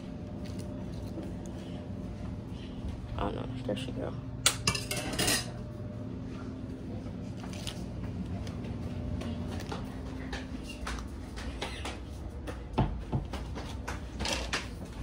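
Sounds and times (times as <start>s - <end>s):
steady low hum: 0.0s - 15.0s
kitchenware clinking: 4.4s - 5.6s.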